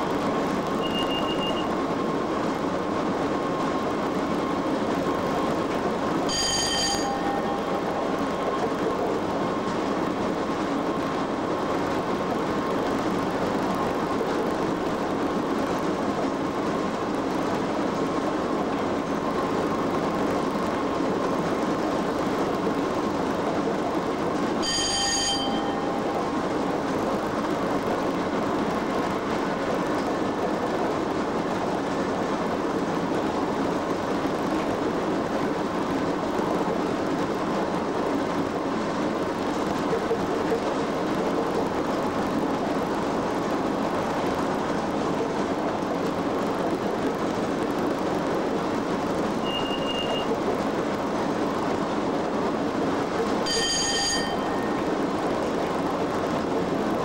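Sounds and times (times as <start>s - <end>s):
locomotive running noise: 0.0s - 57.0s
wheels on rail: 0.0s - 57.0s
bell-like tone: 6.3s - 7.6s, 24.6s - 26.0s, 53.4s - 54.7s.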